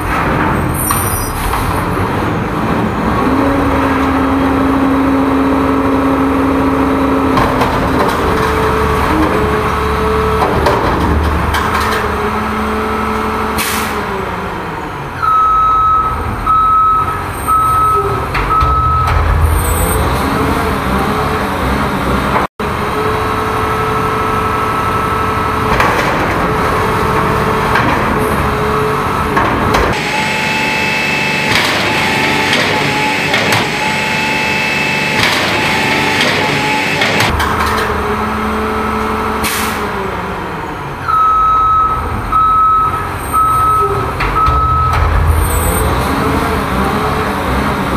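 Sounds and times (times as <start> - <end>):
garbage truck hydraulics working: 0.0 - 47.9
reversing beeps: 15.2 - 19.1, 41.1 - 45.0.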